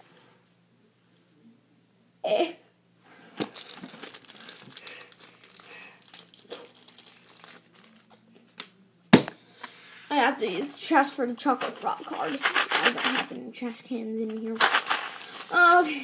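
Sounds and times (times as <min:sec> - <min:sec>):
plastic wrapper crinkling: 0:03.4 - 0:08.7, 0:11.6 - 0:13.3, 0:14.3 - 0:16.0.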